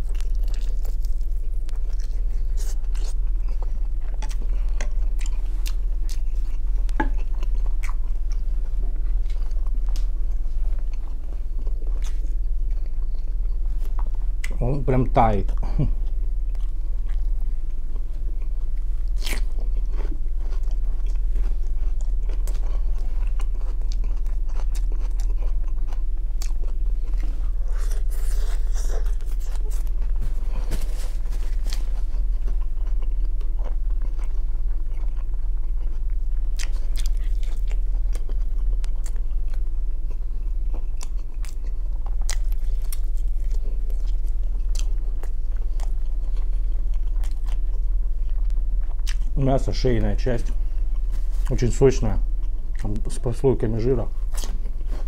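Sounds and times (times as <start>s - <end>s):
chewing and biting meat: 0.0s - 55.0s
steady low hum: 0.0s - 55.0s
paper napkin rustling: 27.3s - 32.2s.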